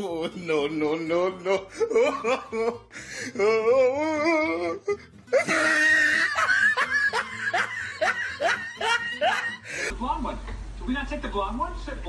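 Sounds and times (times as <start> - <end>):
woman whining: 1.5 - 6.7
woman shrieking wheezy laugh: 1.6 - 9.9.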